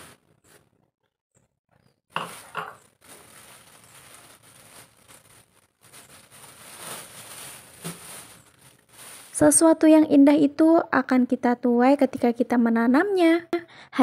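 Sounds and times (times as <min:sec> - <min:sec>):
plastic bag rustling: 0:00.0 - 0:00.7, 0:02.1 - 0:09.8.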